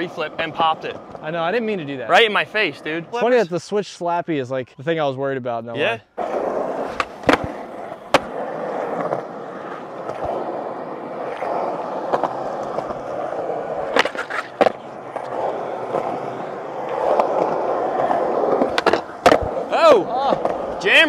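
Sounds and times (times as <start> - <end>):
skateboard wheels rumbling: 0.0 - 3.1, 6.2 - 21.0
skateboard clacks: 6.2 - 21.0
skateboard grinding a rail: 6.2 - 21.0.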